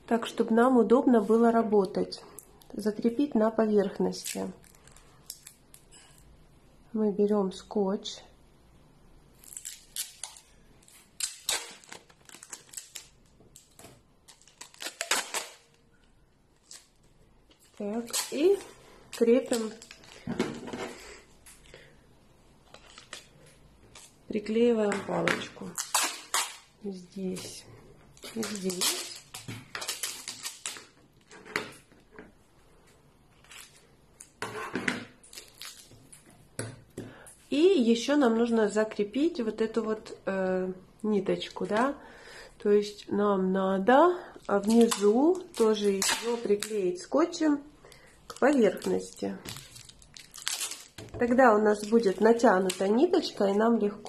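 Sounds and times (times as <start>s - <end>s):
packing tape ripping off roll: 9.4s - 15.8s, 25.6s - 26.7s, 28.2s - 31.0s, 44.6s - 46.8s, 48.4s - 51.1s.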